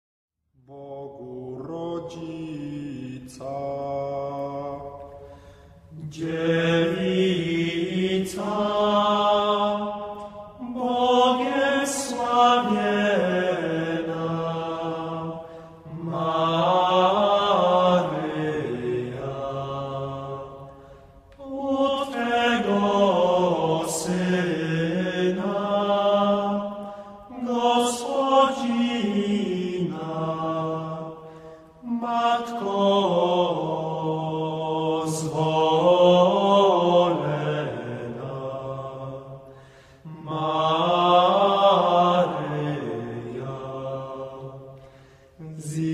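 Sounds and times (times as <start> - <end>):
man chanting: 0.6 - 4.3.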